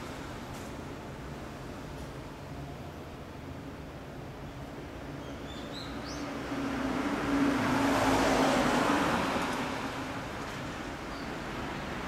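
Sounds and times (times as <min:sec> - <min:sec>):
bird chirping: 0:05.2 - 0:06.3
vehicle passing by: 0:06.3 - 0:12.0.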